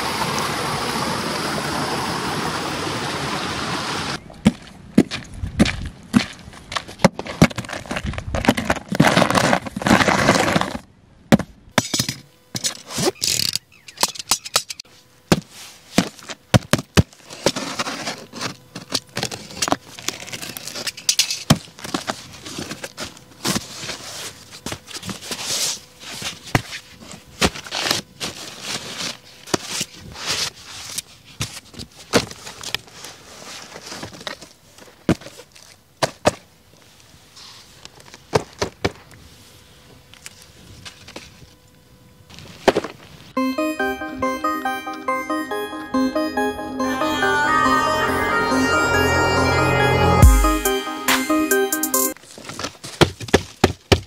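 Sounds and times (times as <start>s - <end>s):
cardboard flaps tearing and creaking: 7.1s - 10.9s.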